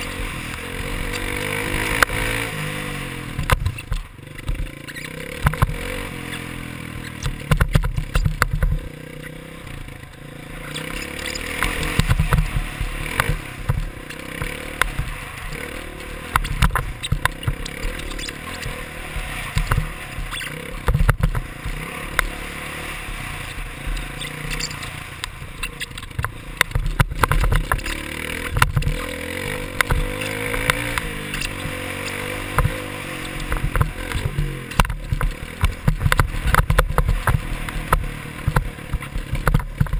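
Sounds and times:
dirt bike engine revving: 0.0s - 39.9s
sharp knocks from bumps: 3.3s - 5.9s, 7.0s - 8.9s, 10.7s - 15.2s, 16.0s - 22.3s, 25.7s - 39.9s.

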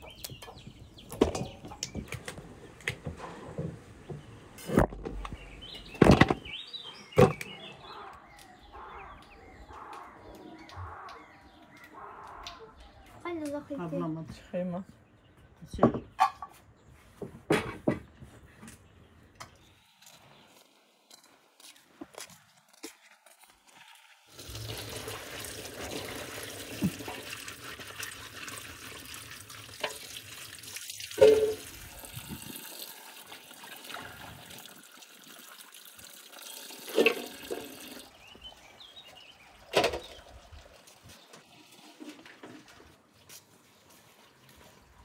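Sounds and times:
water pouring into metal colander: 23.7s - 38.2s.

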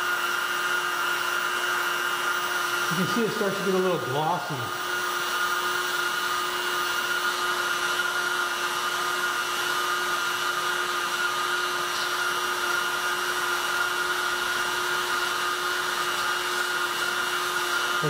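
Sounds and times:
heat gun running: 0.0s - 18.0s.

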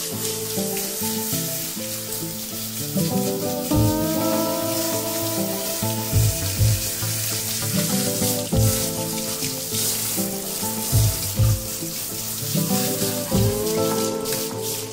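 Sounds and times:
shower spray hissing: 0.0s - 14.9s
background music with bass thumps: 3.7s - 4.2s, 6.1s - 7.0s, 8.5s - 9.0s, 10.9s - 11.8s, 13.3s - 13.8s.

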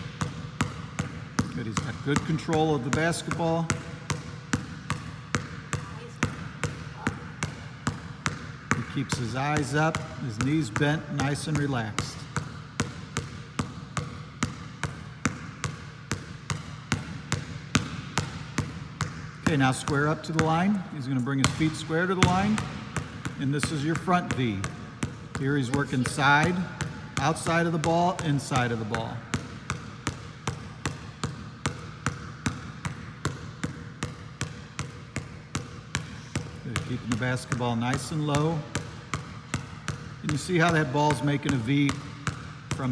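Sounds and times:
basketball bouncing on gym floor: 0.0s - 42.9s.

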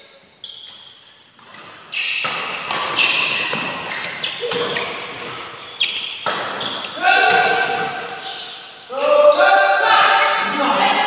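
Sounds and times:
rackets hitting shuttlecock: 1.4s - 9.1s.

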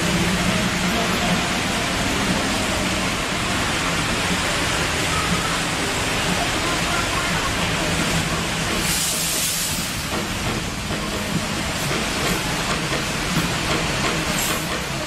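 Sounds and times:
bus engine hum: 0.0s - 15.0s
tyres hissing on wet road: 0.0s - 15.0s.

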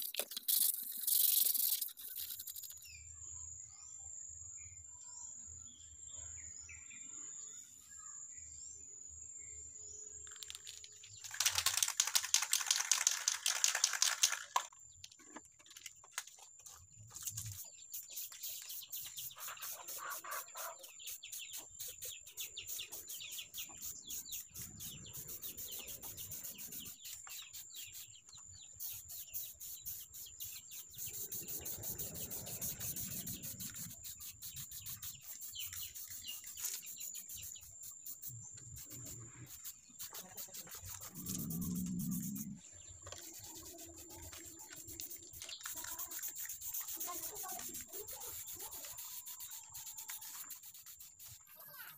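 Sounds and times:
birds chirping: 16.3s - 51.9s
chicken clucking: 19.3s - 21.0s.

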